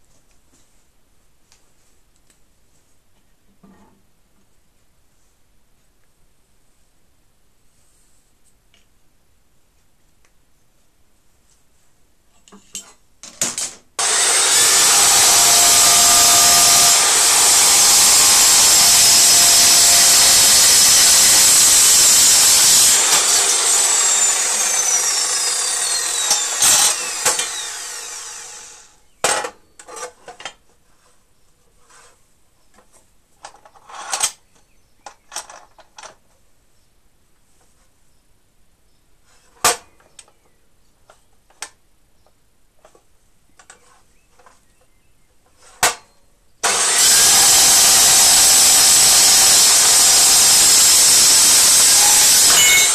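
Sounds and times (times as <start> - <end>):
chop saw cutting metal: 14.0 - 29.0, 46.6 - 52.9
saw motor spinning down: 14.0 - 29.0, 46.6 - 52.9.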